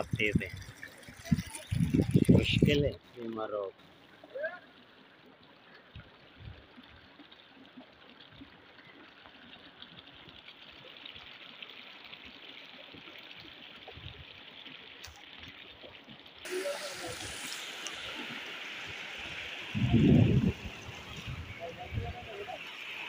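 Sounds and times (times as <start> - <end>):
floodwater rushing: 0.0 - 23.0.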